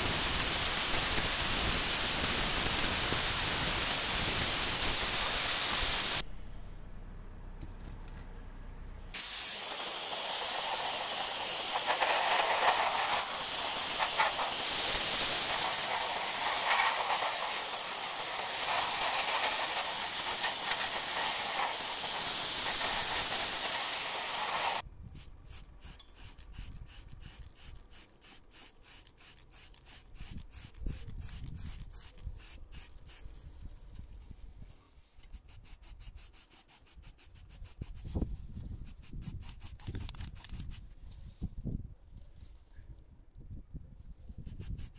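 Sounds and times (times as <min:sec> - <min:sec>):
abrasive hissing rush on metal: 0:00.0 - 0:06.2, 0:09.1 - 0:24.8
back-and-forth scraping strokes: 0:09.1 - 0:24.8.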